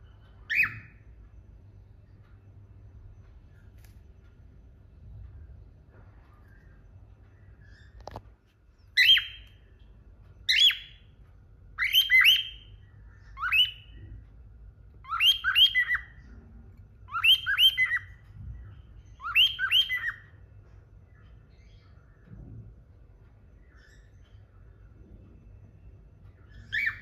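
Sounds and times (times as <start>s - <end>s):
cockatiel chirping: 0.4s - 1.0s, 8.8s - 9.6s, 10.4s - 11.1s, 11.8s - 14.1s, 15.0s - 16.4s, 17.0s - 18.3s, 19.0s - 20.4s, 26.5s - 27.0s.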